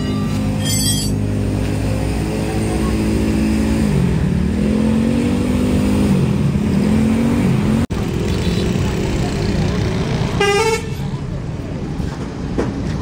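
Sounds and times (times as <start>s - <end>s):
truck engine revving: 0.1s - 10.5s.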